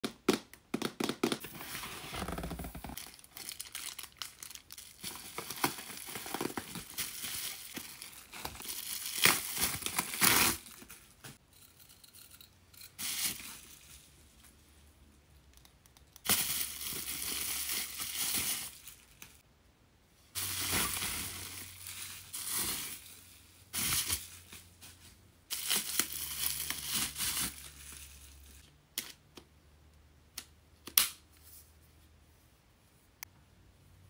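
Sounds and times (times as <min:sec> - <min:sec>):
plastic packaging crinkling: 0:02.2 - 0:11.2.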